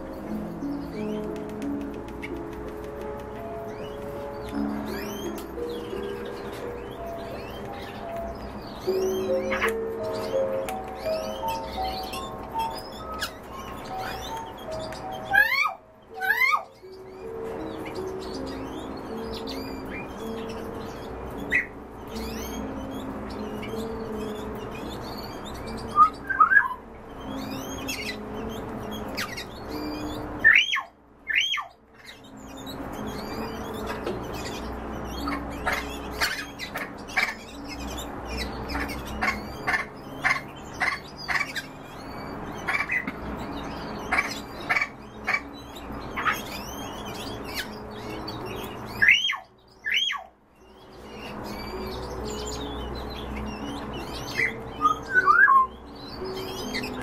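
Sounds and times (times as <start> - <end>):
bird chirping quickly: 3.0 - 57.0
bird squawking: 8.9 - 18.5, 21.4 - 22.8, 25.8 - 28.4, 29.0 - 32.2, 35.2 - 41.8, 44.0 - 48.2, 48.9 - 50.4, 53.6 - 57.0.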